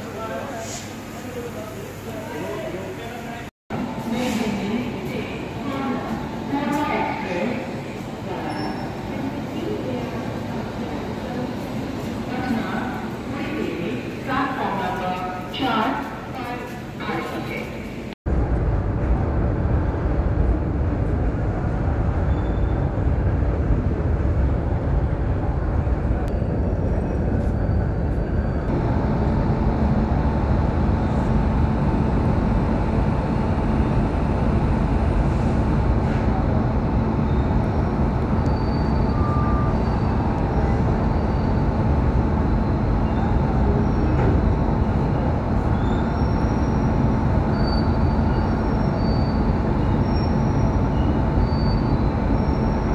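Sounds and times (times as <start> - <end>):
steady hum: 9.2 - 52.9
high whine: 18.3 - 52.9
locomotive machinery running: 18.4 - 52.9.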